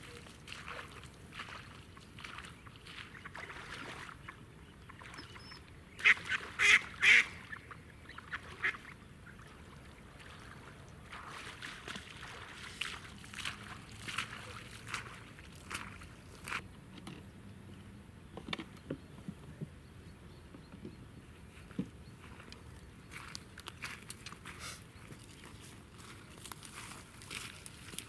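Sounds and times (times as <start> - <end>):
duck quacking: 6.0 - 7.4.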